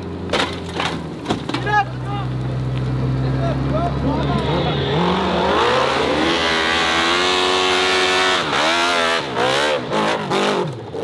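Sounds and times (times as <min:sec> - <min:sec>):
dirt bike engine revving: 0:03.5 - 0:11.0.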